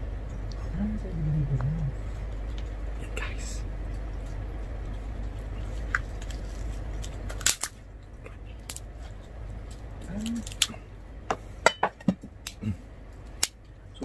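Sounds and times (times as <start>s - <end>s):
roast pork crackling when torn: 3.9s - 10.8s.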